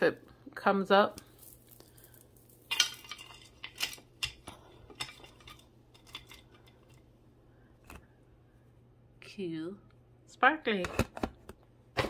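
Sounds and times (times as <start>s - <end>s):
jewelry clinking and rattling: 1.2s - 7.0s.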